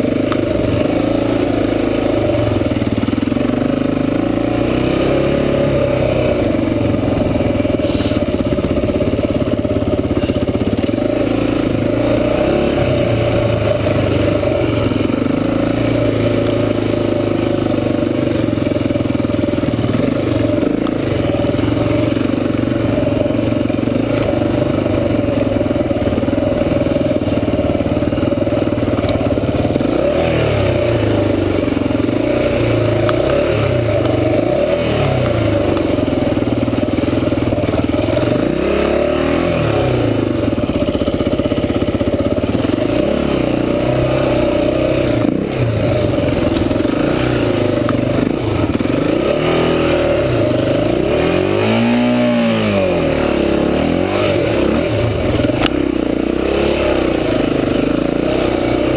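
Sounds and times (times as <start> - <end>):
dirt bike engine revving: 0.0 - 58.9.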